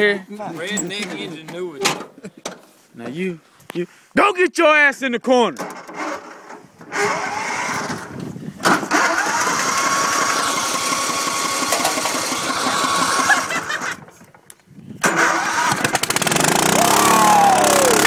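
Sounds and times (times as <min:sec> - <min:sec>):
motor whining: 0:16.1 - 0:18.0.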